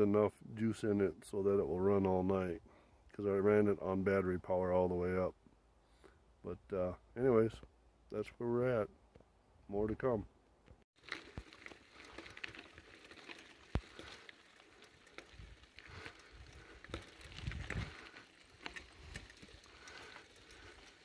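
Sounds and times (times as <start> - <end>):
footsteps on gravel: 11.0 - 21.0.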